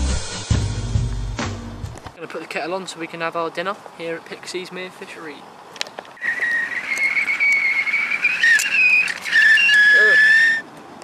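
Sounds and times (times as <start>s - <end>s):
kettle whistling: 6.2s - 10.7s.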